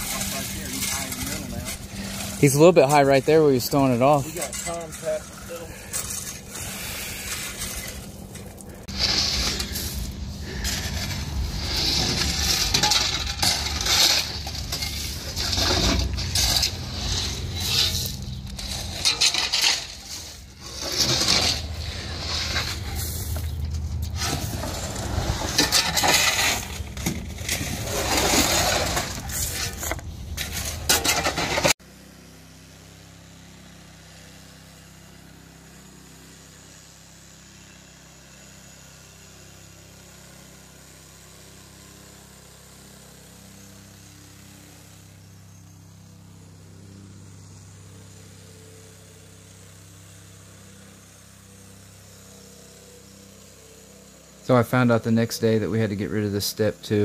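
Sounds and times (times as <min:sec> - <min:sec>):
steady low hum: 0:00.0 - 0:31.7
gravel rattling: 0:00.0 - 0:31.8
shovel scraping metal bed: 0:00.0 - 0:31.8.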